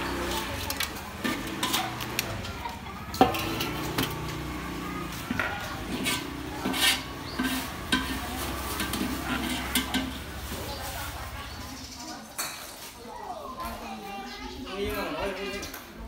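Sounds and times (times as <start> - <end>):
crab shells clinking in metal colander: 0.1 - 4.6.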